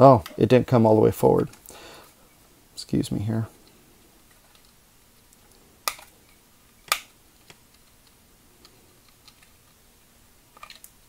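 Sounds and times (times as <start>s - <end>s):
plastic toy parts clicking: 10.5s - 11.0s.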